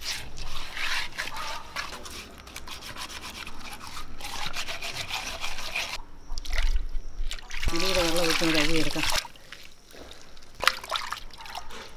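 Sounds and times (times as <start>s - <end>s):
hands scrubbing fish in water: 0.0s - 11.9s
water splashing and dripping: 6.3s - 11.9s.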